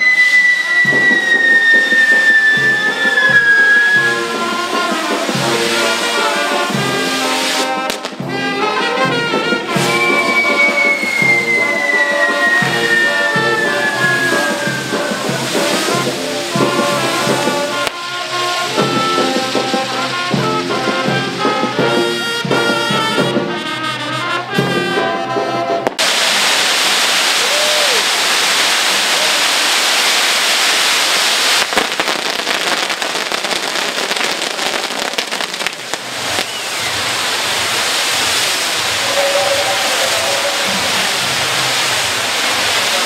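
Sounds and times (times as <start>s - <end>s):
rushing hiss with crackling: 0.0s - 23.1s, 25.8s - 43.0s
brass band music: 0.0s - 27.0s, 37.1s - 43.0s.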